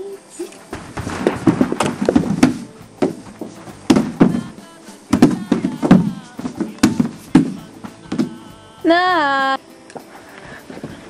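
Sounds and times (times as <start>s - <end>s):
music playing: 0.0s - 11.0s
heavy thumps: 0.7s - 8.7s.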